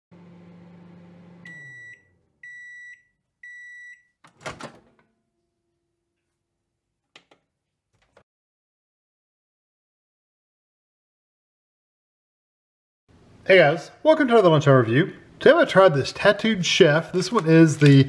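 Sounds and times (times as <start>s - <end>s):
microwave running hum: 0.1s - 3.8s
microwave beeps: 1.2s - 4.2s.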